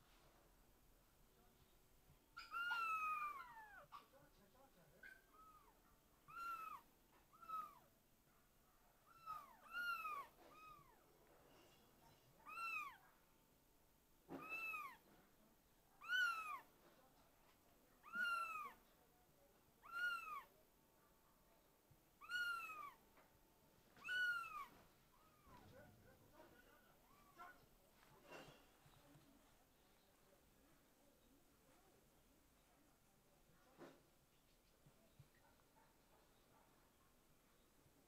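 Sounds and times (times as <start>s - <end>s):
kitten meowing: 2.4s - 3.8s, 6.3s - 7.8s, 9.1s - 11.0s, 12.4s - 13.0s, 14.4s - 15.0s, 16.0s - 16.7s, 18.0s - 18.8s, 19.8s - 20.5s, 22.2s - 23.0s, 24.0s - 25.6s.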